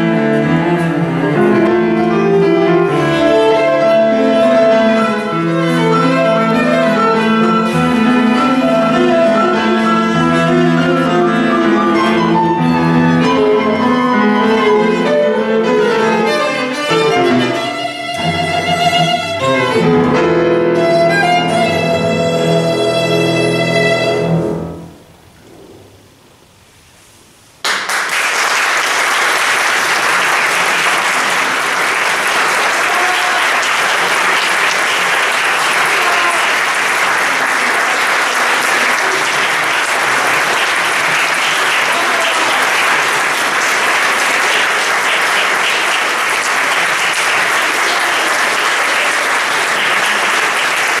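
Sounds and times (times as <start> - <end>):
audience applause: 27.6 - 51.0.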